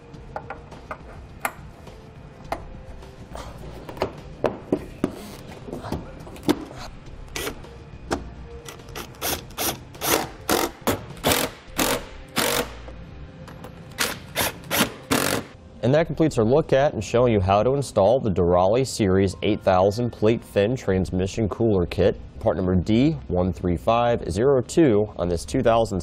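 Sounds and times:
cordless impact driver bursts: 9.6 - 12.8.

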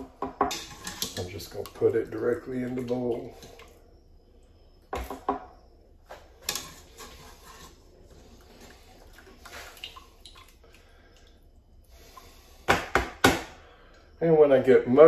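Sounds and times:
wet scraping of rice: 0.5 - 1.8, 6.4 - 10.3.

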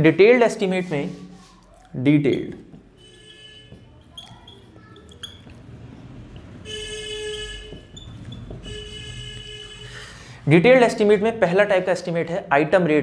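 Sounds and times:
marker squeaking on a whiteboard: 0.7 - 9.8.

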